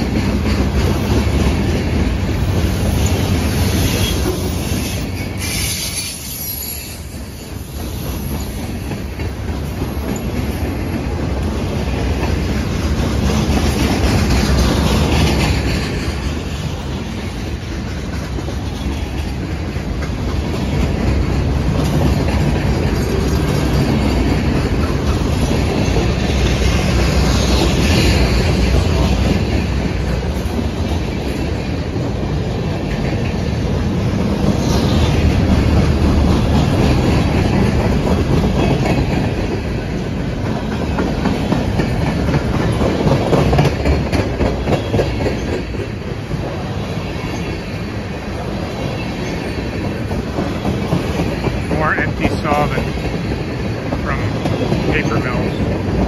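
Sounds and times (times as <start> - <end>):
freight train wheels clattering: 0.0 - 56.0
wheel squeal on rail: 2.7 - 9.2.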